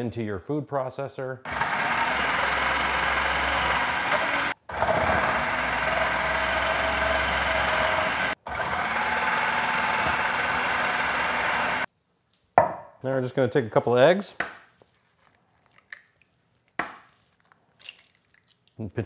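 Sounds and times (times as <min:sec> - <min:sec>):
food processor shredding: 0:01.5 - 0:11.9.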